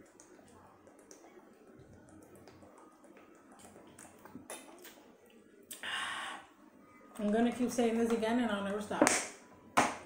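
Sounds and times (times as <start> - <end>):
gulping and swallowing water: 0.0 - 5.8.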